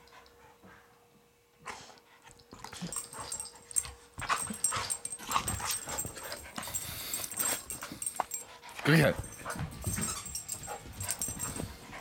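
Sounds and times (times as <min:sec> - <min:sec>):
dogs scuffling: 0:02.4 - 0:12.0.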